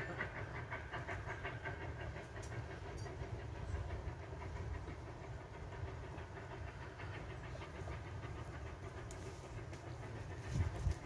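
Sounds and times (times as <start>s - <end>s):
steady low rumble: 0.0s - 11.0s
steam locomotive chuffing: 0.0s - 11.0s.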